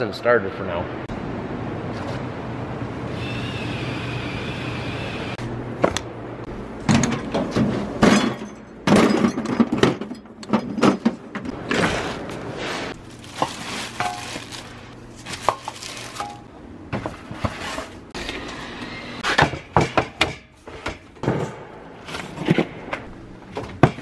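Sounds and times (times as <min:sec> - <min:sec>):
steady hum with high whine: 0:00.0 - 0:19.6
metal tools clanking in drawer: 0:08.0 - 0:11.2.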